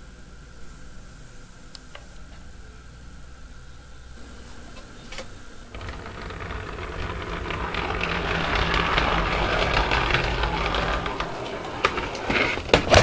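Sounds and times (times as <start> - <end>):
low hum: 0.0 - 13.0
model railway car rumbling on track: 5.7 - 13.0.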